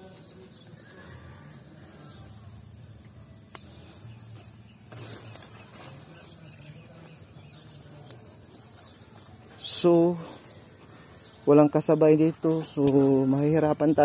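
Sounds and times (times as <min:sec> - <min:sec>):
faint rustling: 0:03.5 - 0:13.5.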